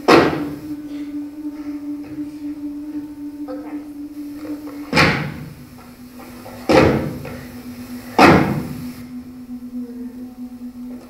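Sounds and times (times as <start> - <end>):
steady low hum: 0.0 - 11.0
loud ringing bangs: 4.8 - 9.1.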